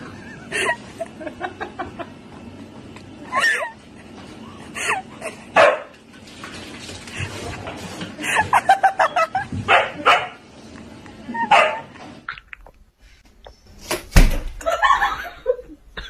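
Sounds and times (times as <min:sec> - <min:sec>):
husky barking and yelping: 0:11.4 - 0:11.9.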